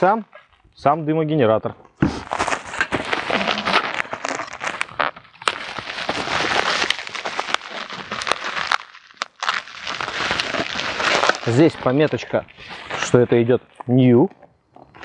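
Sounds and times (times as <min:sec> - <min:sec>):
plastic packaging crinkling: 0:02.2 - 0:13.2.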